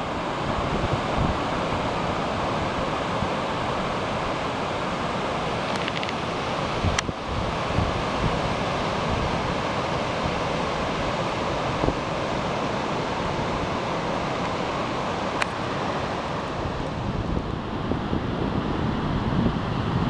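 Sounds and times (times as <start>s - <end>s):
wind on microphone: 0.0s - 20.0s.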